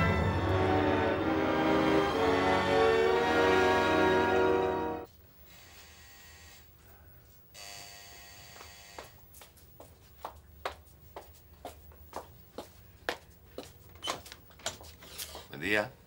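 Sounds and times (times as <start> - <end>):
tense drama score: 0.0 - 5.1.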